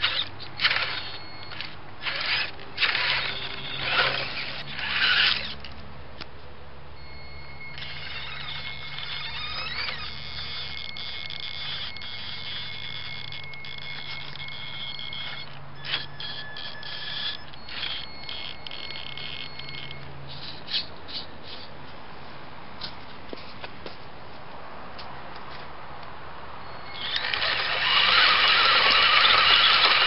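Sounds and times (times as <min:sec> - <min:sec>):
toy truck electric motor whining: 0:00.0 - 0:05.7, 0:07.1 - 0:21.7, 0:26.8 - 0:30.0
sharp clicks: 0:07.7 - 0:20.1, 0:26.9 - 0:30.0.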